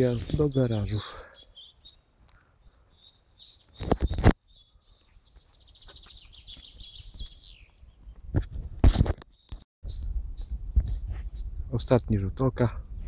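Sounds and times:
songbird singing: 0.0s - 8.4s, 9.2s - 12.3s.

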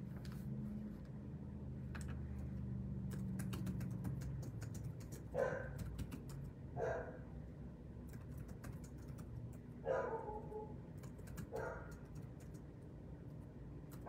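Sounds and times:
dog barking: 5.3s - 5.8s, 6.8s - 7.3s, 9.8s - 10.8s, 11.5s - 12.0s.

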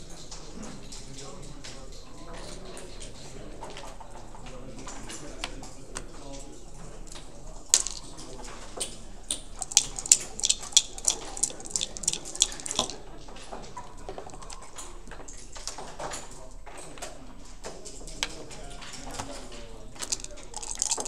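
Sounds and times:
dice shaken in a cup: 7.6s - 8.5s, 9.3s - 13.1s, 13.7s - 14.9s, 19.8s - 21.0s
dice rattling onto a board: 7.7s - 13.0s, 13.6s - 14.9s, 20.0s - 21.0s.

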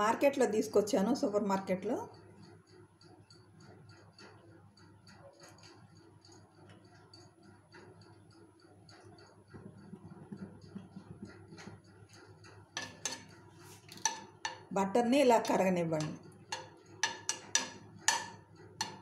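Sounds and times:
faint regular ticking: 0.0s - 19.0s
low steady hum: 5.2s - 19.0s.

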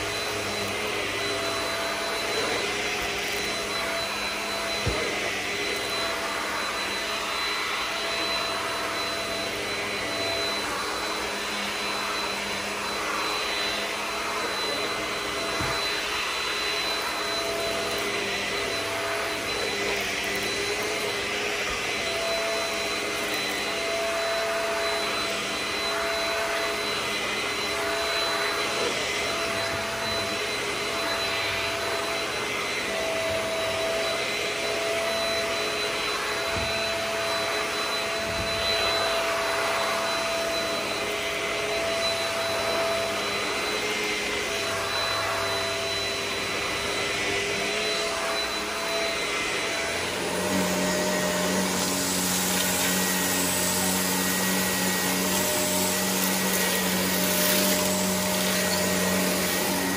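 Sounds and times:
vacuum cleaner running on rug: 0.0s - 59.9s.

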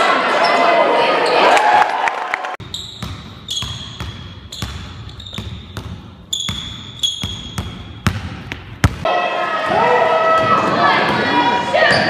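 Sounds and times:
basketball bouncing on wooden floor: 2.7s - 9.0s.

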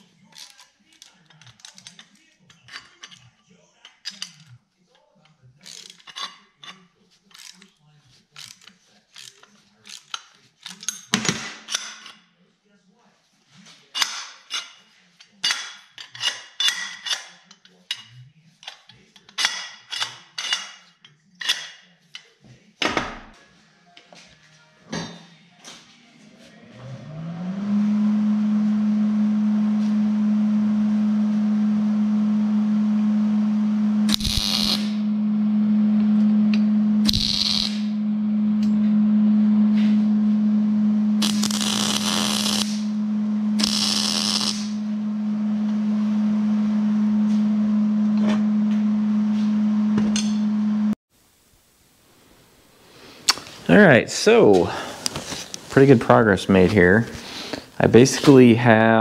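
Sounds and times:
welding machine hum: 27.1s - 51.0s
welding crackling: 34.1s - 35.1s, 36.1s - 38.0s, 41.1s - 46.2s.

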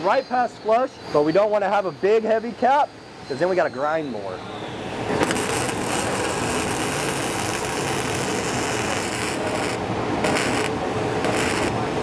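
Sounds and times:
welding arc crackling and sizzling: 5.1s - 12.0s.

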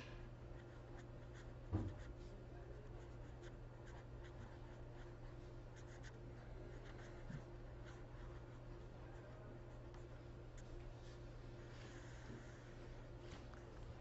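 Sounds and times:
low electrical hum: 0.0s - 14.0s
marker pen scratching on paper: 0.6s - 2.2s, 5.8s - 8.6s.

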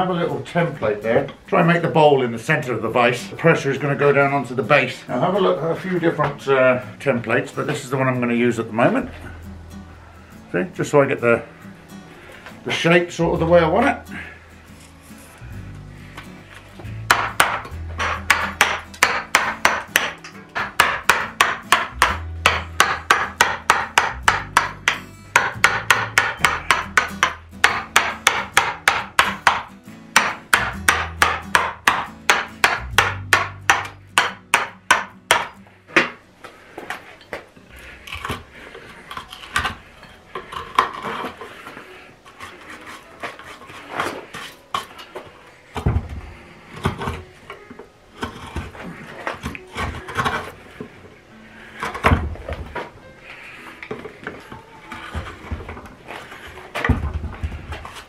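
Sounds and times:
mallet striking a gouge: 17.1s - 36.2s.

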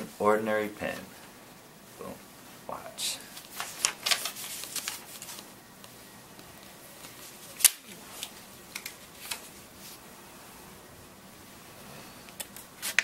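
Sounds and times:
paper crinkling: 3.3s - 5.5s.

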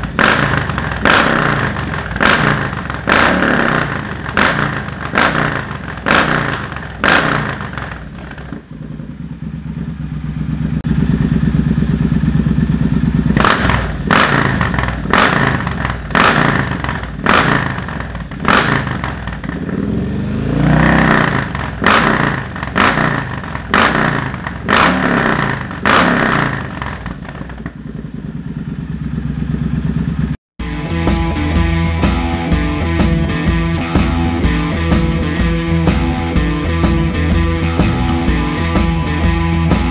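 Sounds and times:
motorcycle engine revving hard: 0.0s - 30.4s.

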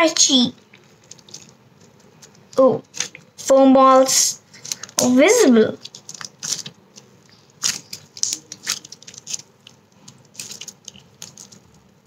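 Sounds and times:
small clicks and crackles: 0.6s - 3.4s, 4.5s - 5.2s, 5.8s - 12.0s
slime squished by hand: 5.8s - 11.8s.

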